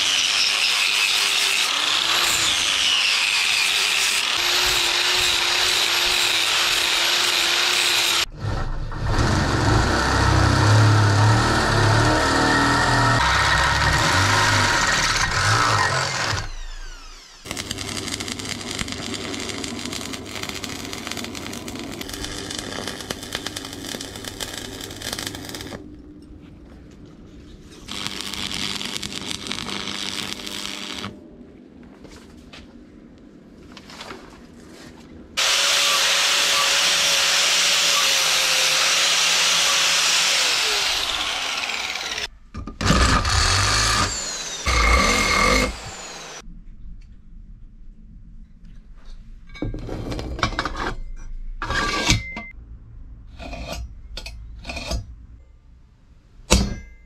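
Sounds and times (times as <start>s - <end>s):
power tools working metal: 0.0s - 8.3s, 8.9s - 25.8s, 27.8s - 31.2s, 35.4s - 46.4s.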